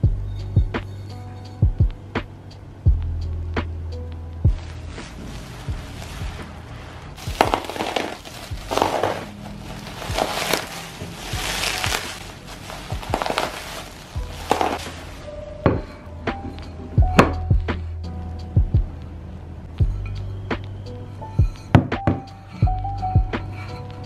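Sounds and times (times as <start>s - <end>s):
bubble wrap crinkling: 4.5s - 15.4s.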